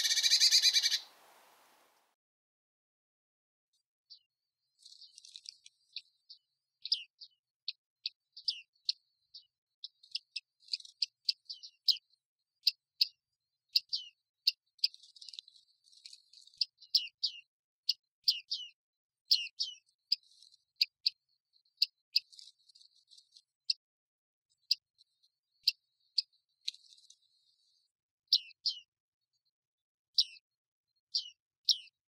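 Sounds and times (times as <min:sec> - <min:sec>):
birds ping calls: 0:00.0 - 0:01.8
soft bird twittering: 0:00.0 - 0:01.8.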